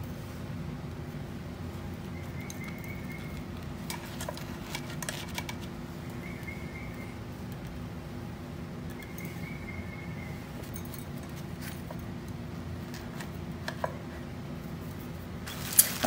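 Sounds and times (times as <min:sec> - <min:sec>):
steady low hum: 0:00.0 - 0:16.0
bread crackling: 0:11.3 - 0:16.0.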